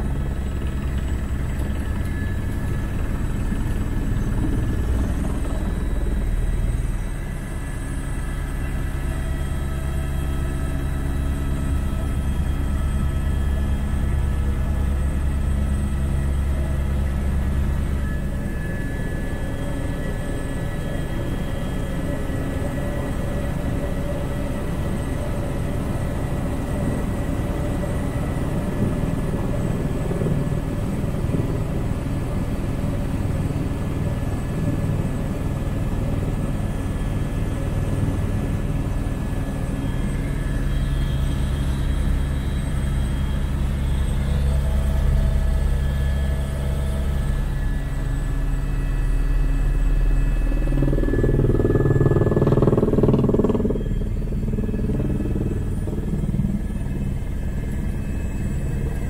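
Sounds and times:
small aircraft engine drone: 0.0s - 59.0s.

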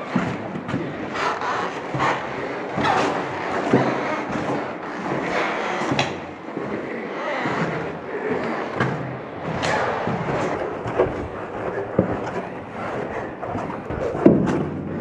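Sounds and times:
boots crunching on gritty floor: 0.0s - 15.0s.

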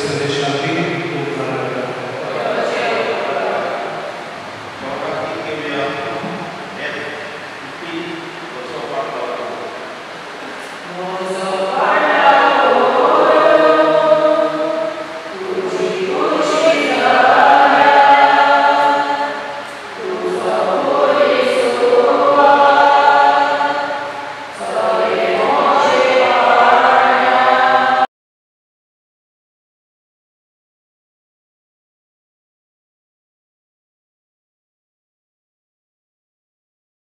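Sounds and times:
choir singing a hymn: 0.0s - 6.4s, 8.6s - 28.1s.

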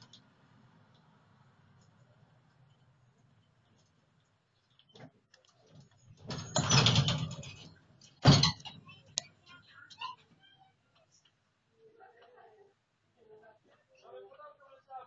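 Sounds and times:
tram doors rattling: 6.2s - 8.8s.

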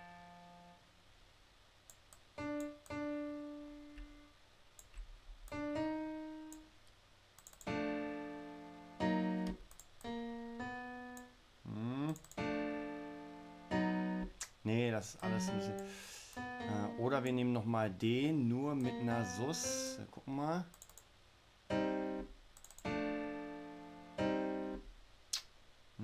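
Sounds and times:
piano notes and chords: 2.4s - 4.3s, 5.5s - 6.7s, 7.7s - 14.4s, 15.0s - 20.1s, 21.7s - 24.9s.

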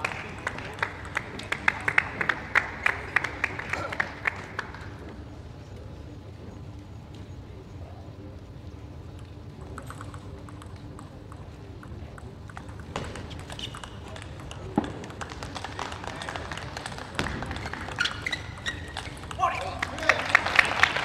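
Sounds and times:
people clapping: 0.0s - 5.3s, 12.5s - 21.0s
table tennis ball tapping: 9.7s - 20.2s
crowd reacting: 19.4s - 21.0s.

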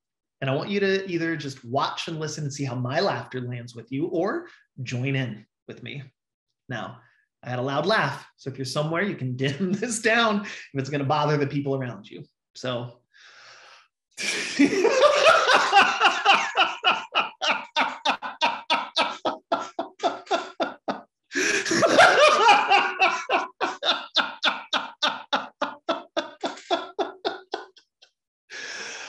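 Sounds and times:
man laughing heartily: 14.2s - 27.8s.

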